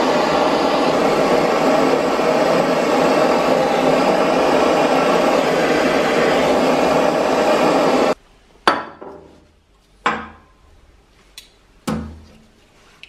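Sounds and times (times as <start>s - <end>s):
gas torch flame hissing: 0.0s - 8.2s.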